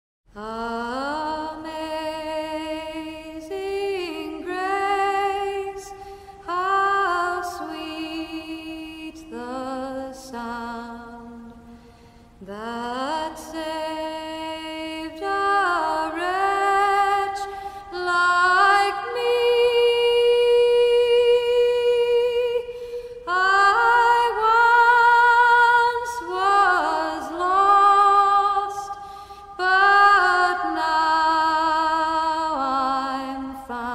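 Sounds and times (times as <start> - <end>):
solo voice singing slow melody: 0.3 - 33.9.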